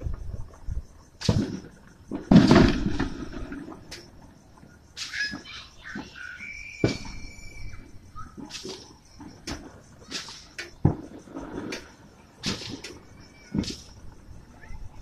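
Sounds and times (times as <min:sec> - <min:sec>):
fireworks high chirps: 0:00.0 - 0:15.0
fireworks bangs: 0:01.2 - 0:04.2, 0:05.0 - 0:14.8
firework high whistle: 0:05.0 - 0:09.3, 0:10.0 - 0:11.8, 0:12.4 - 0:14.0.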